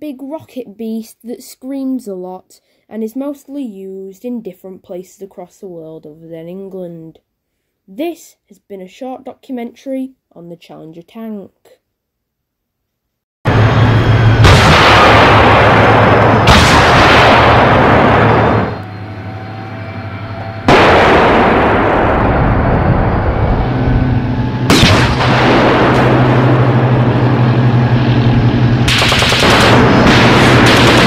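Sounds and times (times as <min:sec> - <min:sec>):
steady low hum: 0:13.5 - 0:31.0
tank gun blasts with echo: 0:14.4 - 0:18.8, 0:20.7 - 0:22.6, 0:24.7 - 0:27.0, 0:28.8 - 0:31.0.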